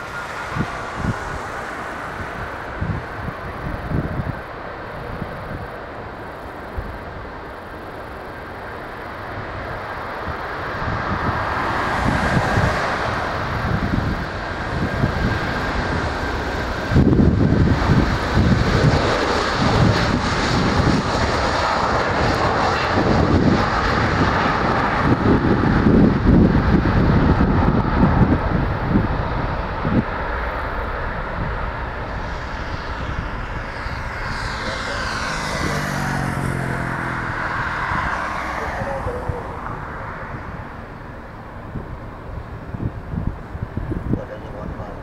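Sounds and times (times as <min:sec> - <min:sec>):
faint steady whine: 0:00.0 - 0:10.8
jet engine roar: 0:00.0 - 0:45.0.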